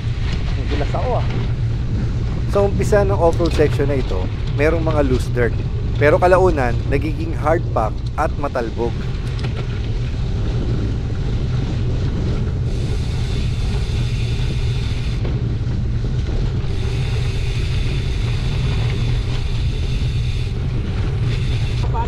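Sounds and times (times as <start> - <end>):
wind buffeting microphone: 0.0 - 22.0
bike tyres on gravel: 8.8 - 22.0.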